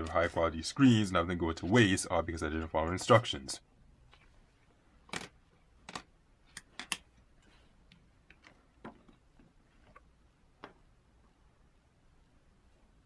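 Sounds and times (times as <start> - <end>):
faint clicks and taps: 4.0 - 10.9.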